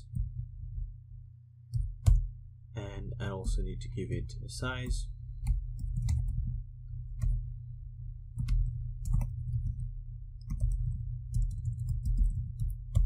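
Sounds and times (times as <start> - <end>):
steady low hum: 0.0 - 13.0
computer keyboard keys clicking: 4.8 - 6.4, 8.4 - 13.0.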